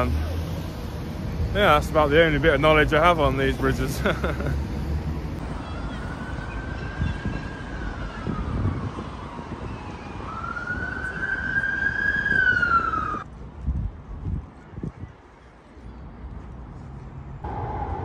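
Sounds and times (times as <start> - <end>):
city traffic rumble: 0.0 - 18.0
emergency siren wailing: 5.4 - 13.2, 17.4 - 18.0.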